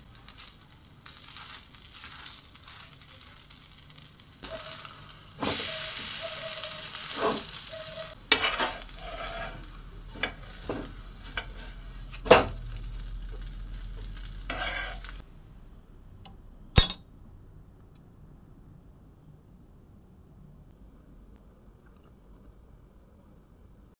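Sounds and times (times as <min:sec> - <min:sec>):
dosa sizzling in oil: 0:00.0 - 0:15.3
steel spoon scraping a pan: 0:05.7 - 0:12.5, 0:14.4 - 0:15.2
sharp clack: 0:16.8 - 0:17.0.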